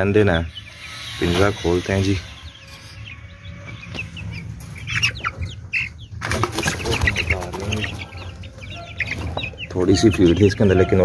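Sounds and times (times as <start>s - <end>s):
chicks peeping: 0.0s - 11.0s
birds scuffling and rustling: 2.6s - 11.0s.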